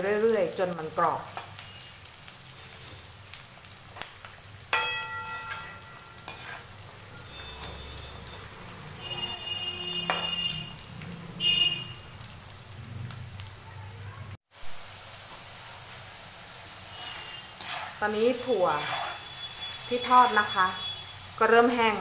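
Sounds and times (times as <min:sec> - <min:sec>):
frying sizzle: 0:00.0 - 0:22.0
metal skimmer scraping a wok: 0:05.1 - 0:08.0, 0:16.7 - 0:20.5.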